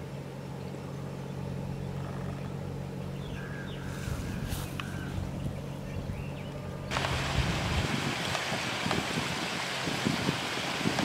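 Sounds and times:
low motor hum: 0.0s - 11.0s
faint bird chirps: 0.4s - 6.7s.

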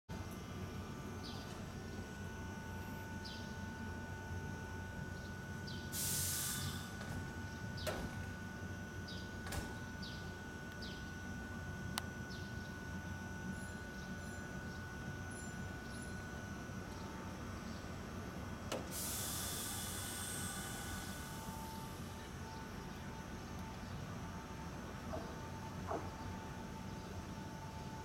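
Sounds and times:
short hiss: 6.0s - 7.0s.

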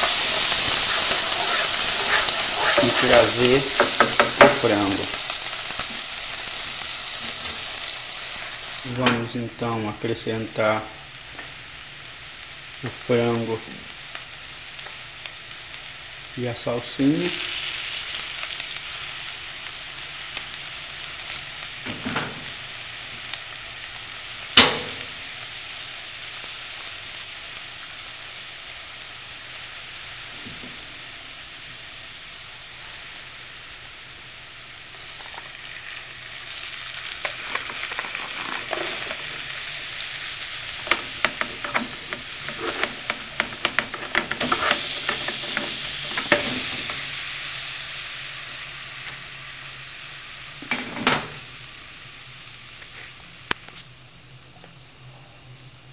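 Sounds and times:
oil sizzling in a frying pan: 0.0s - 54.4s
sharp knock: 24.6s - 25.0s
utensil clicking and scraping pan: 37.2s - 39.3s, 40.8s - 46.8s.

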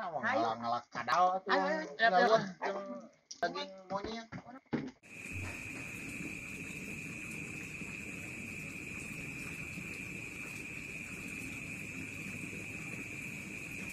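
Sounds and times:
crickets trilling: 5.1s - 13.9s.

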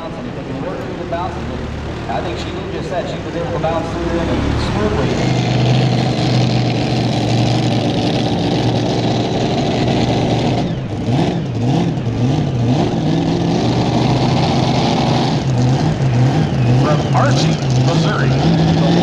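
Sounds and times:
tractor engine revving: 0.0s - 19.0s.

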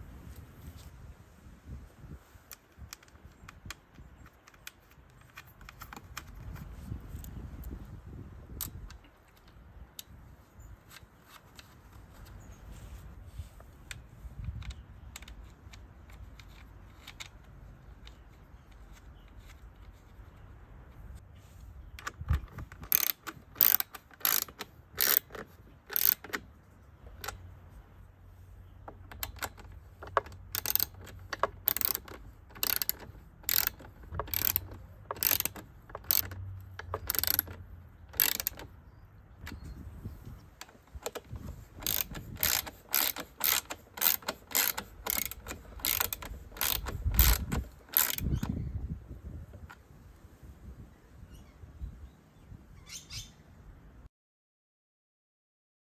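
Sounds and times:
socket ratchet clicking: 22.0s - 26.5s, 28.9s - 38.7s, 40.6s - 48.7s.

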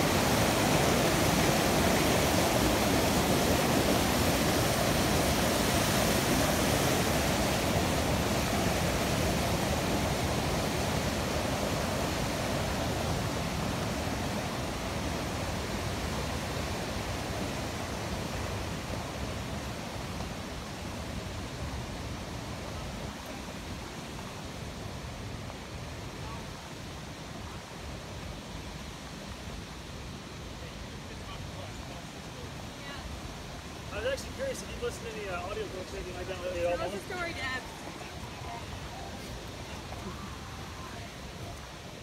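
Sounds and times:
rushing water hissing: 0.0s - 42.0s.

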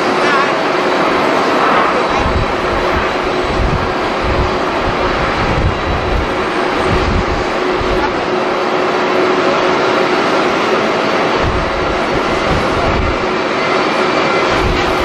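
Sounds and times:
wind buffeting microphone: 0.0s - 8.6s, 11.2s - 13.5s, 14.2s - 15.0s
jet engines running: 0.0s - 15.0s.

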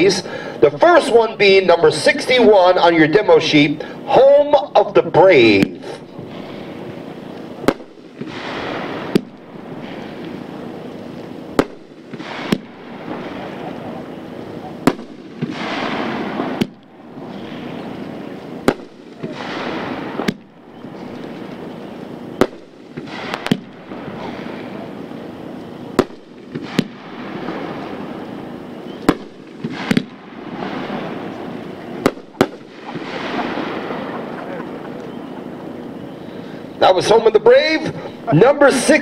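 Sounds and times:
firework bangs: 0.0s - 37.8s
hissing rush of sparks: 5.4s - 35.0s.

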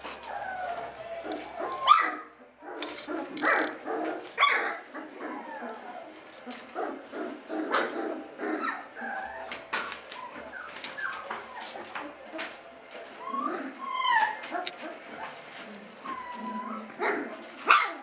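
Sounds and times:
puppies whimpering and yipping: 0.0s - 18.0s.

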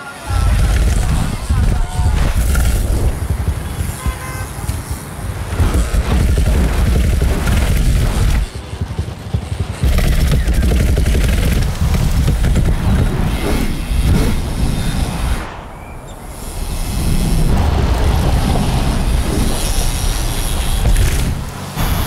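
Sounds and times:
tyres striking steps: 0.4s - 14.4s.

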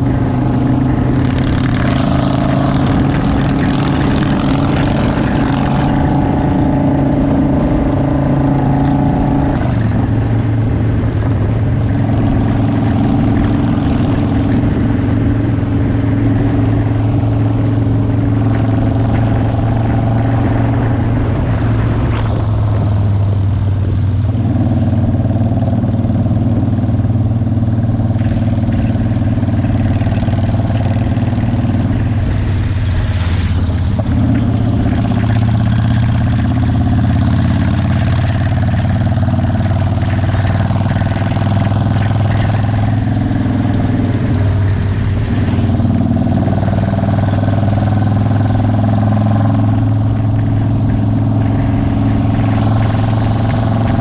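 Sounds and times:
motorcycle engine cruising: 0.0s - 54.0s
wind and road noise: 0.0s - 54.0s.

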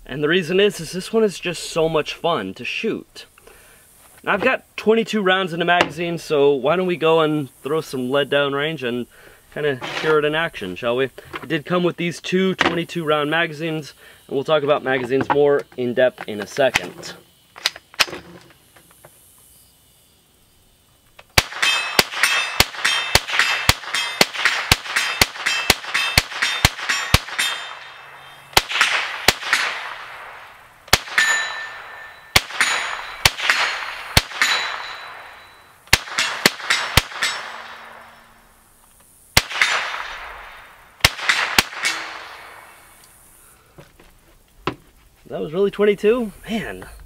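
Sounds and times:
rifle shots: 21.4s - 38.3s, 39.4s - 42.9s.

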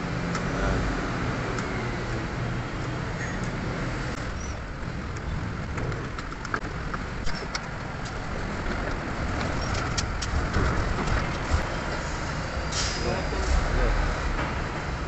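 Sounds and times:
workshop rumble and hiss: 7.9s - 15.0s.

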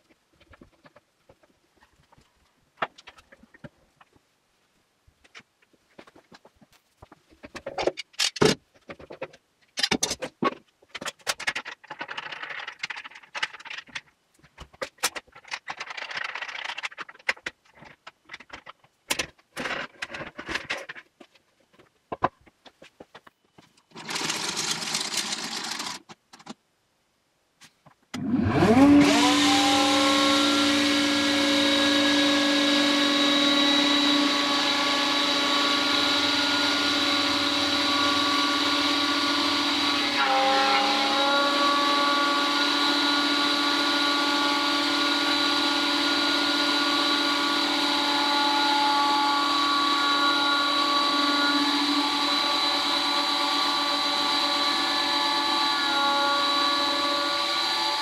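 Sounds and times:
jointer-planer motor whine: 28.2s - 58.0s.

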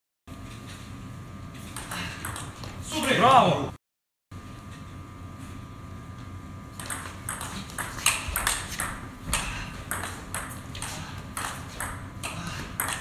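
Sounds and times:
table tennis ball clicking: 6.8s - 13.0s.

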